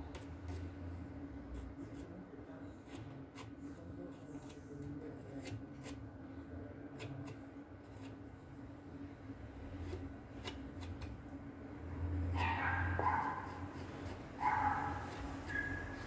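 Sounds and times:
spatula scraping wood filler: 0:07.0 - 0:08.2, 0:13.4 - 0:16.0.

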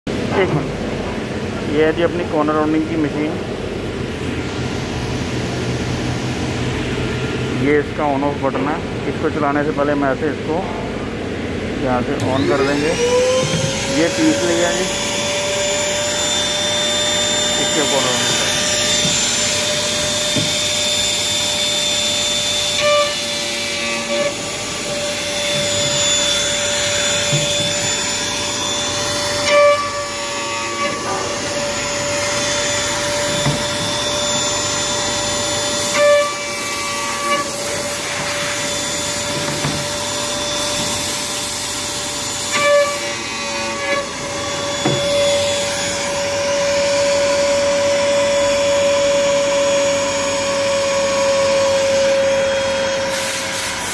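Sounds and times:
machine motor whine: 0:11.8 - 0:53.6.

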